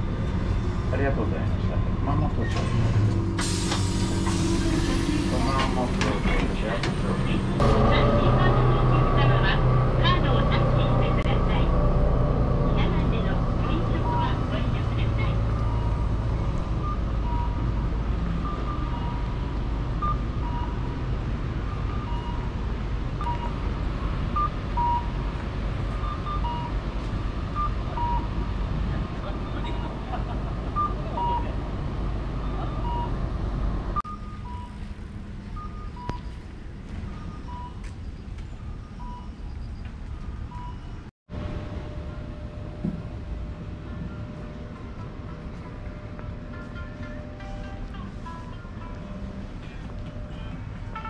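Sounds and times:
street ambience: 0.0s - 51.0s
street traffic rumble: 0.0s - 51.0s
short electronic beeps: 35.5s - 36.4s, 37.1s - 39.8s, 40.5s - 41.0s.

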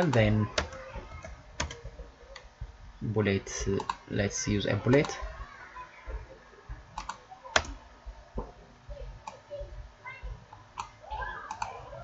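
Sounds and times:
keyboard and mouse clicks: 0.0s - 2.5s, 3.7s - 4.0s, 7.0s - 7.8s, 10.8s - 11.8s.

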